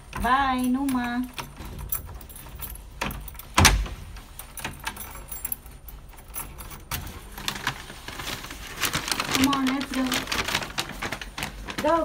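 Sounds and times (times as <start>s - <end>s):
light metal jingling: 0.0s - 7.4s.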